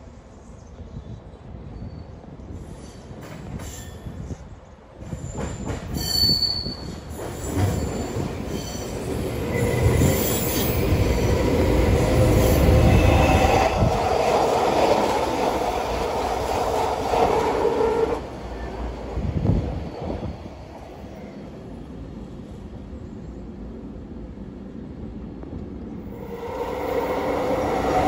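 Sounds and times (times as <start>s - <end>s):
steady train whine: 0.0s - 28.0s
train wheel and rail noise: 0.0s - 28.0s
high wheel squeal: 5.2s - 10.8s.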